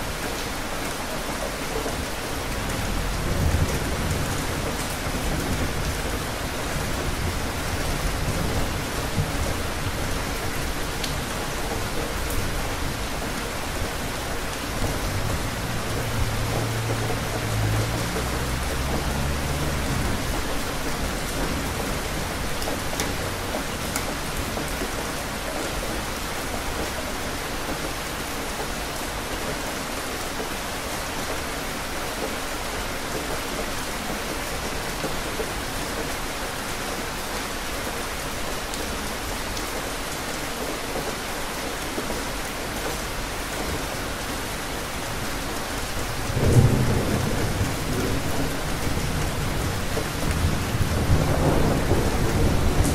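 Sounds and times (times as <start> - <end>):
steady rain falling: 0.0 - 52.9
low thunder rumble: 2.5 - 6.3.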